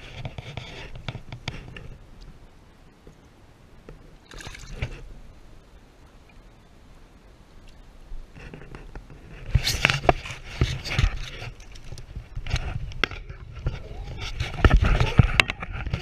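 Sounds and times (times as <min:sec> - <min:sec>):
water splashing from thrashing fish: 0:04.3 - 0:04.8.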